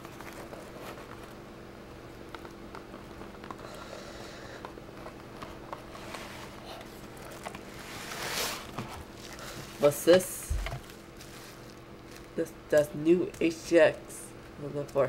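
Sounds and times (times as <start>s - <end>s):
low electrical hum: 0.0s - 15.0s
plastic wrapping rustling: 4.9s - 13.5s.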